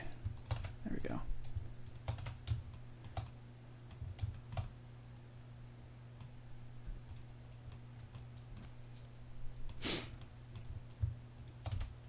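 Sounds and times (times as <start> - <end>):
steady low hum: 0.0 - 12.0
keyboard and mouse clicks: 0.3 - 0.8, 1.5 - 4.7, 7.0 - 8.7, 9.6 - 12.0.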